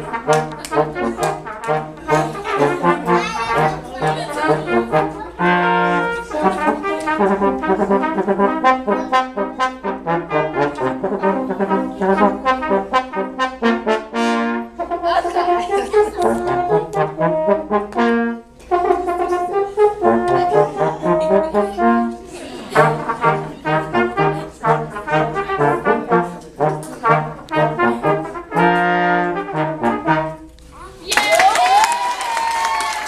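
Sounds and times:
low brass ensemble playing: 0.0 - 30.6
applause and cheering: 31.0 - 33.0.

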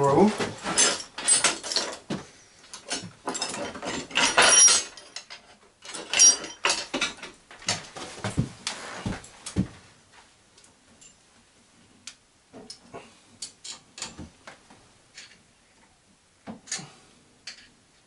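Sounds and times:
metal tools clattering on workbench: 0.4 - 7.8.

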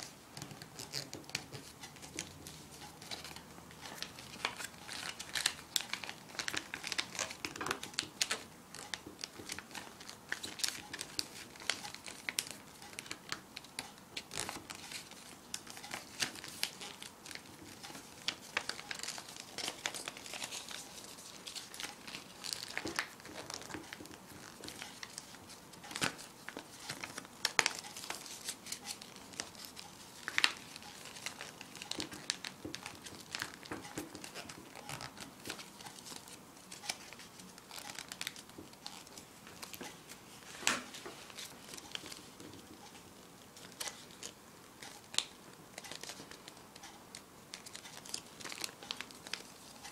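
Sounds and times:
sharp paper crackles: 0.0 - 13.2, 14.2 - 39.9
paper crinkling and rustling: 0.0 - 49.9.

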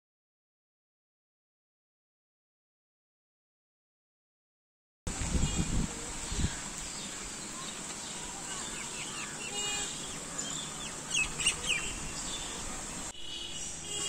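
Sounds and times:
steady high-pitched hiss: 5.1 - 14.0
birds chirping: 5.3 - 14.0.

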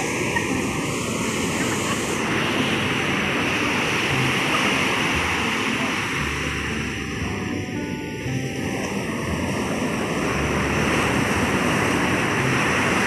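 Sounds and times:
waves breaking: 0.0 - 13.0.

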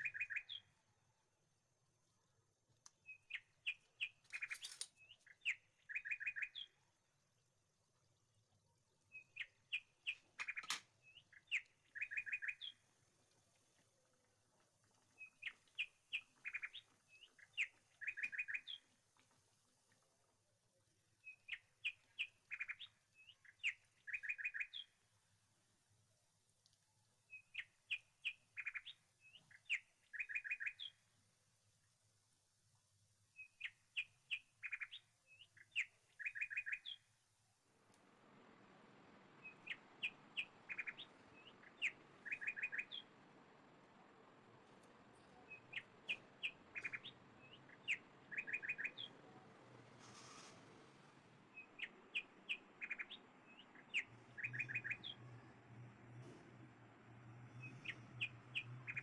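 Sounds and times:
bird chirping: 0.0 - 0.8, 2.8 - 7.0, 8.0 - 14.1, 15.0 - 19.0, 21.2 - 25.0, 27.3 - 31.1, 33.3 - 37.2, 39.4 - 43.1, 44.7 - 49.4, 51.5 - 56.2, 57.2 - 59.0.

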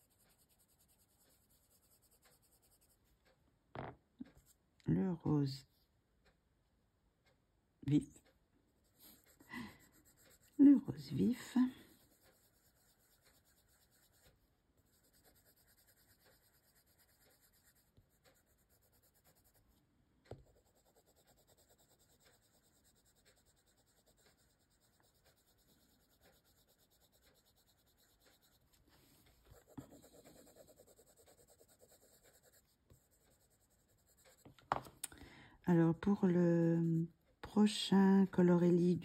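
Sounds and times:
pencil scratching on paper: 0.0 - 3.1, 8.8 - 34.9.

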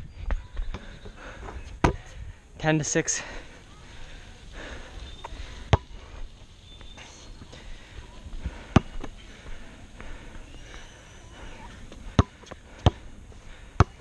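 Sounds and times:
heavy breathing: 0.7 - 14.0
basketball bouncing on asphalt: 5.6 - 6.0, 8.6 - 9.2, 11.9 - 13.1, 13.8 - 14.0.

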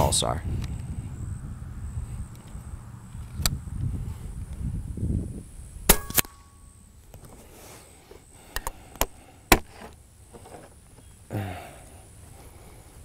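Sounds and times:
air rifle firing crack: 5.8 - 6.5.

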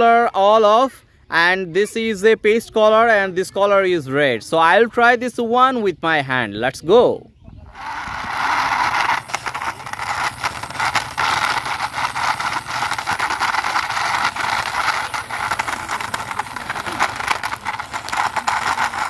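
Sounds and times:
toy wheels rolling on concrete: 7.6 - 19.0.

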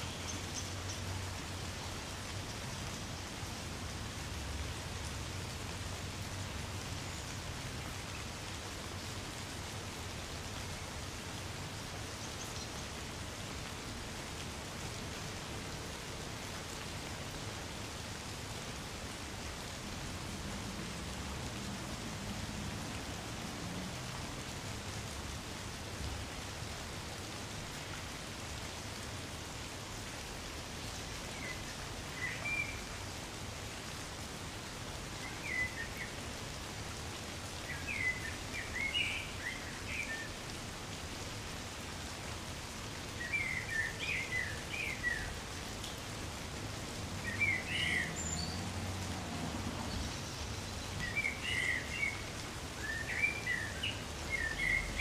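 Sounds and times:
gentle rain on trees: 0.0 - 55.0.

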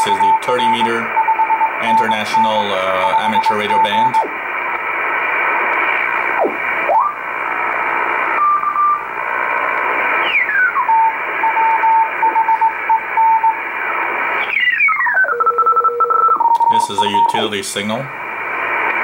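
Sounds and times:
morse code signal: 0.0 - 4.3, 8.3 - 9.0, 10.2 - 13.6, 14.4 - 17.6
radio band noise hiss: 0.0 - 15.4, 16.4 - 19.0.

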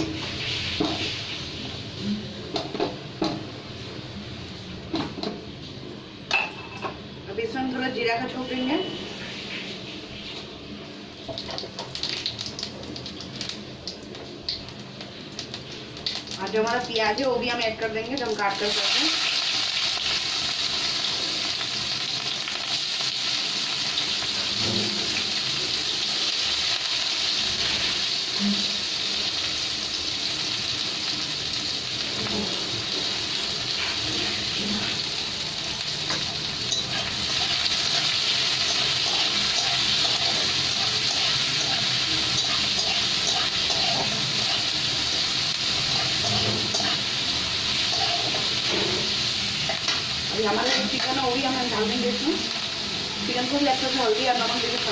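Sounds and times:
onions sizzling in hot oil: 0.0 - 6.7, 7.4 - 54.9.

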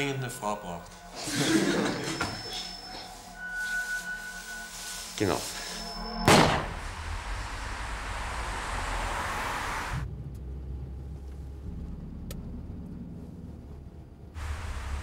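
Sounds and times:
car driving past: 6.3 - 15.0
engine drone inside car cabin: 6.7 - 15.0.

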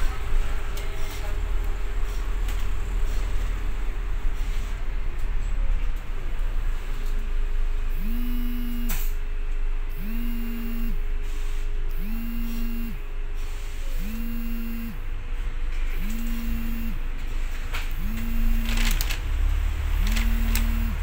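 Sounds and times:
bus engine idling: 0.0 - 8.0, 17.0 - 21.0
low buzzing electronic tone: 7.7 - 21.0.

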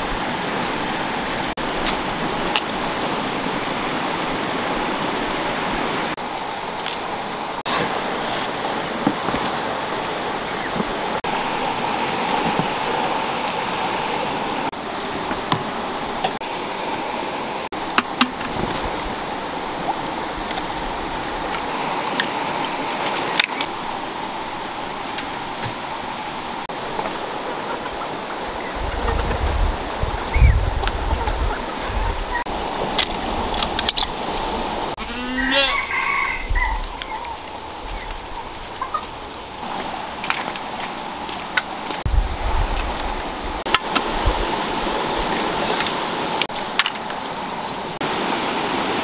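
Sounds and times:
goat kid bleating: 35.0 - 35.9
hen clucking: 35.0 - 37.4, 38.8 - 39.2.

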